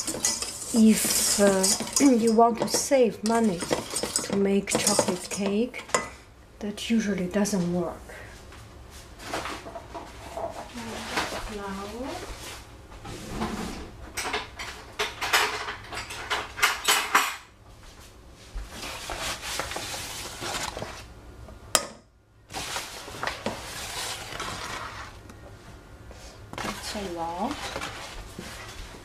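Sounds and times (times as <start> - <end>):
whisk scraping saucepan: 0.0 - 6.1, 22.6 - 25.2, 26.5 - 28.8.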